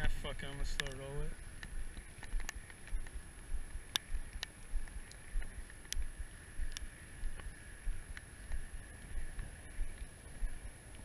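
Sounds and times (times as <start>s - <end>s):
sharp clicks: 0.4s - 3.2s, 3.9s - 7.5s.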